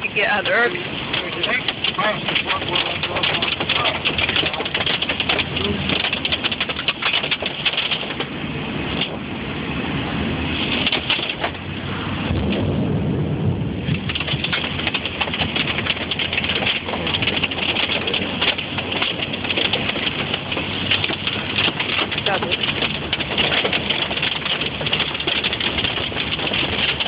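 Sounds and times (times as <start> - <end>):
hail and rain on car roof: 0.0 - 9.2, 10.5 - 27.0.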